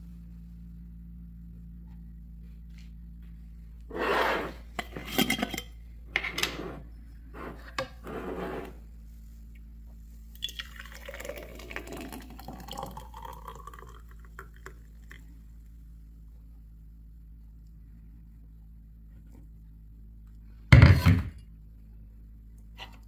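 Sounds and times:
syrup glugging into jar: 10.4s - 14.8s.

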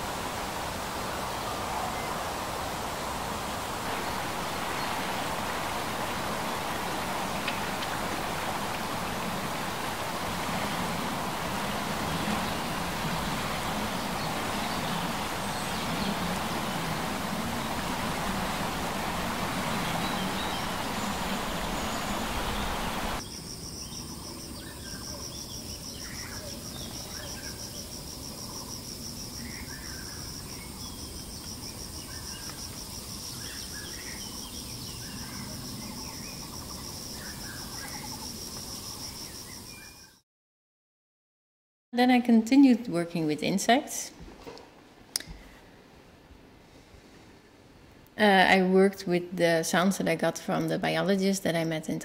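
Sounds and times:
cricket trilling: 3.8s - 40.2s.

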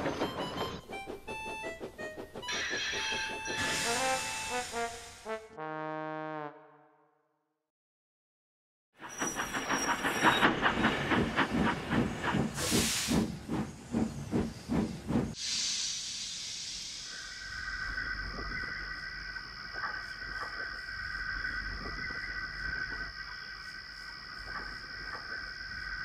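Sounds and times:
locomotive simmering high tone: 0.0s - 5.3s, 9.0s - 19.6s
steam locomotive chuffing: 0.0s - 5.3s, 9.0s - 17.2s
steam hissing: 2.6s - 5.3s, 9.0s - 17.8s.

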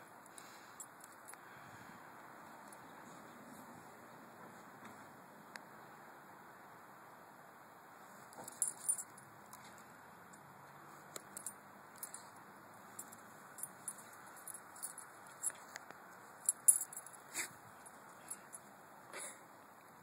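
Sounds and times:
metal dog tags jingling: 8.5s - 9.1s, 11.3s - 12.3s, 13.0s - 15.7s, 16.4s - 17.2s.

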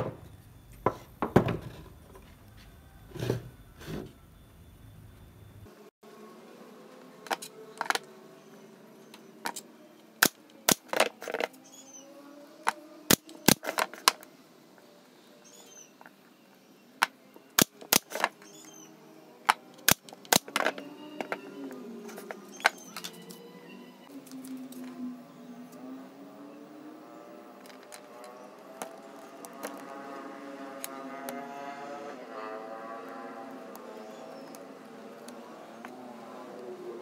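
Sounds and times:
nail gun firing: 10.2s - 11.1s, 13.1s - 13.8s, 17.6s - 18.3s.

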